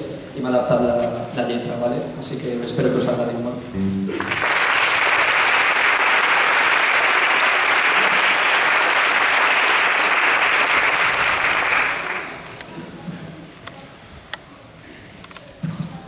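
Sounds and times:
audience applauding: 4.1 - 12.7.

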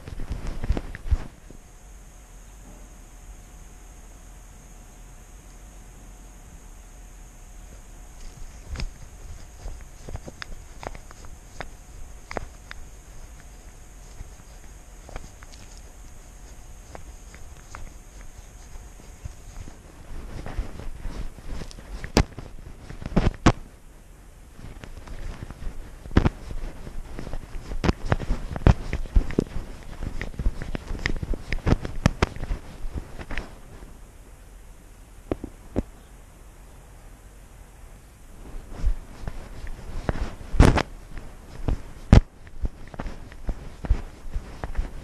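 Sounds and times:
cat stepping rustling: 0.0 - 1.7, 7.6 - 23.8, 24.6 - 34.0, 38.4 - 45.0
knocks and scuffs: 7.7 - 23.7, 24.6 - 33.6, 38.6 - 45.0.

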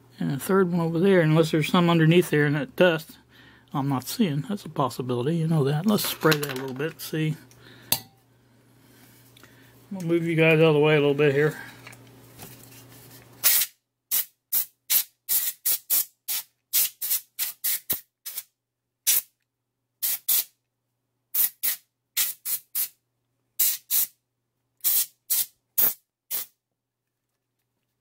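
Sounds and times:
compressed air duster hissing bursts: 20.0 - 20.5, 21.4 - 23.0, 23.6 - 24.1, 24.8 - 26.5.

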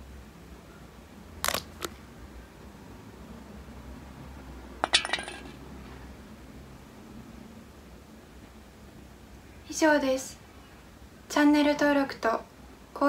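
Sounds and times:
metallic jingling: 4.8 - 5.6.

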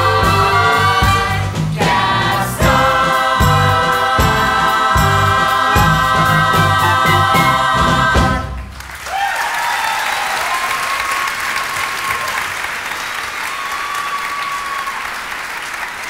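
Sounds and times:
audience applauding: 8.5 - 16.0
cheers: 8.9 - 16.0.

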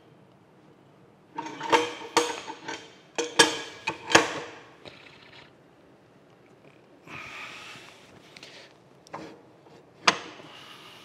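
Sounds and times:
metal parts clanking: 1.4 - 4.6.

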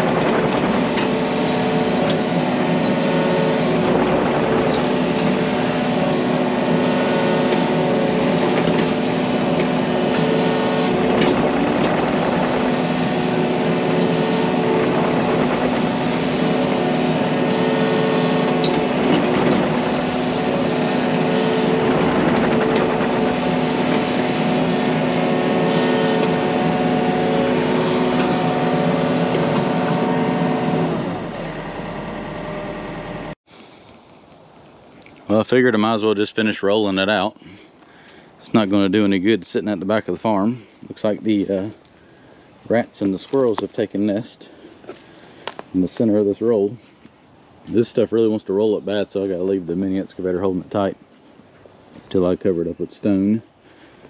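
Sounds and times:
diesel engine running: 0.0 - 33.4.

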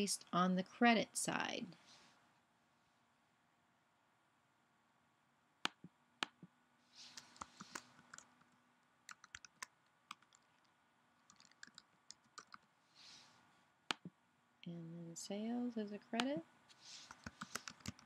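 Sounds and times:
computer keyboard typing: 7.1 - 8.3, 9.1 - 10.5, 11.3 - 12.6, 17.0 - 18.0.

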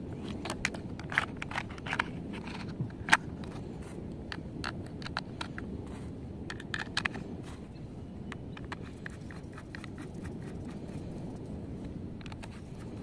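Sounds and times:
plastic toy parts clicking: 0.2 - 3.6, 4.3 - 5.6, 6.5 - 7.2.

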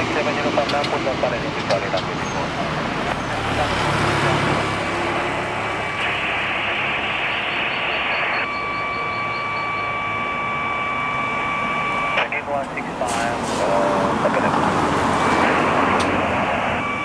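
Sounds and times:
car passing: 0.0 - 6.0, 12.9 - 16.9
steady high whine: 0.0 - 17.0.

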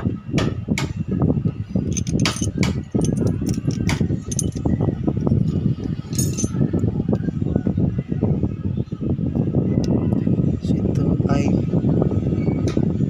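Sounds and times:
steady low rumble: 1.2 - 8.7
metal clinks: 1.9 - 4.8, 6.0 - 6.6.

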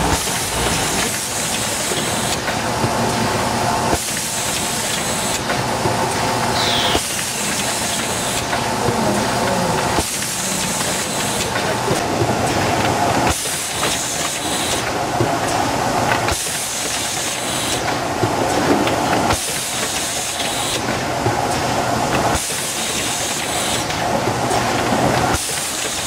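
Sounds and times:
machine clatter: 0.0 - 26.0
sharp machine knock: 6.6 - 8.6.

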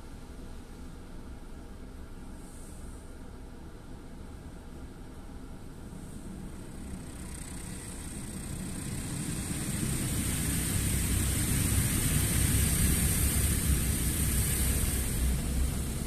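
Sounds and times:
car wash spraying water: 6.2 - 16.0
low rumble: 6.2 - 16.0.

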